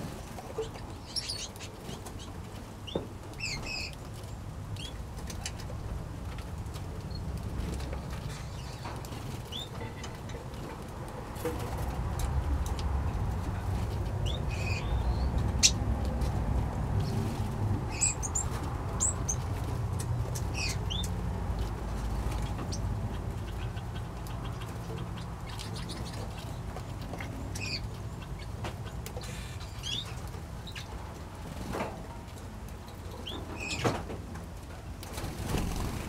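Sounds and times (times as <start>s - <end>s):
finches and parrots chirping: 0.5s - 4.0s, 14.2s - 15.8s, 17.9s - 19.5s, 20.3s - 21.2s, 22.3s - 30.9s, 33.2s - 34.0s.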